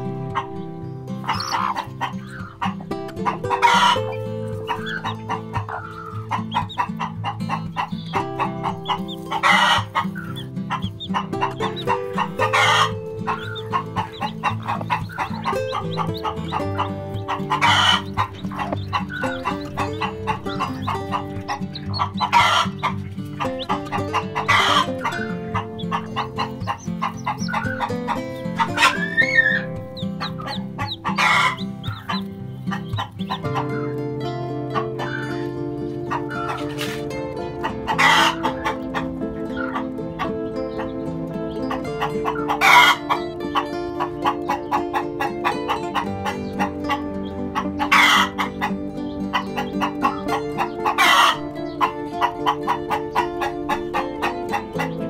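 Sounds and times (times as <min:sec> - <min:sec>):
background music with sustained notes: 0:00.0 - 0:55.0
chicks peeping: 0:00.0 - 0:55.0
harsh chicken calls: 0:00.0 - 0:55.0.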